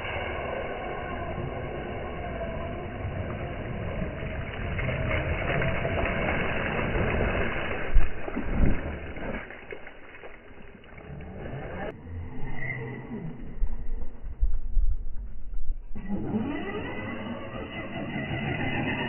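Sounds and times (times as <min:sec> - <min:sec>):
toy car motor whining: 0:16.0 - 0:19.0.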